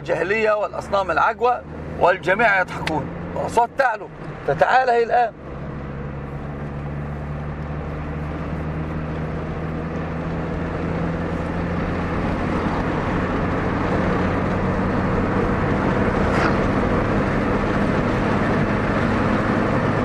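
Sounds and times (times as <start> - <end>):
vehicle engine hum: 0.0 - 20.0.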